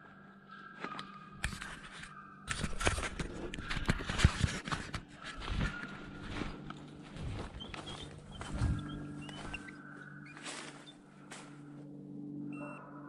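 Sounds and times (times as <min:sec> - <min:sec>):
footsteps crunching through leaves: 0:04.5 - 0:11.7.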